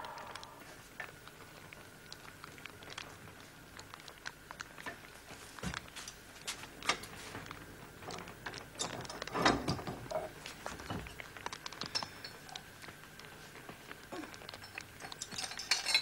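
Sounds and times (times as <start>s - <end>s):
ladles clinking against pots: 14.6s - 16.0s.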